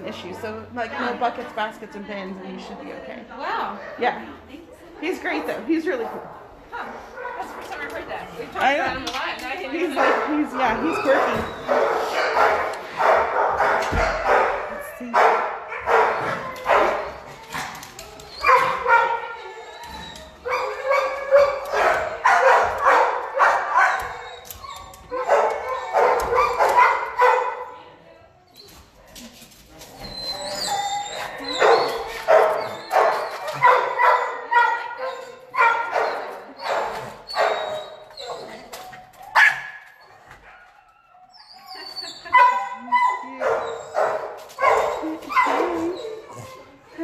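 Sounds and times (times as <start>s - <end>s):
dogs barking and yipping: 9.2s - 27.8s, 29.9s - 47.0s.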